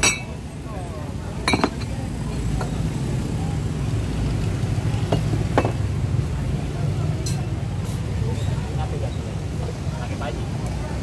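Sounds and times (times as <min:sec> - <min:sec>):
ceramic bowls clinking: 0:00.0 - 0:00.5, 0:01.4 - 0:02.8, 0:05.0 - 0:05.8.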